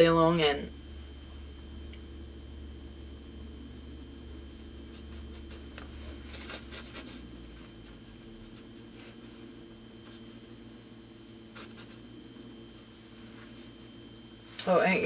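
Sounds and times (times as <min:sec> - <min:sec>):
steady low hum: 0:00.0 - 0:15.0
paintbrush scratching on canvas: 0:04.4 - 0:10.6, 0:11.5 - 0:13.2.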